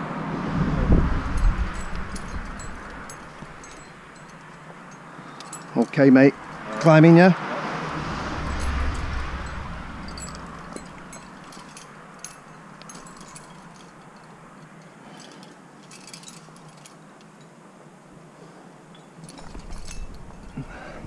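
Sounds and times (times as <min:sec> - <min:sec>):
low rumbling noise: 0:00.0 - 0:04.4, 0:07.6 - 0:13.7
metal climbing gear clinking: 0:01.2 - 0:07.1, 0:08.4 - 0:18.0, 0:18.7 - 0:21.0.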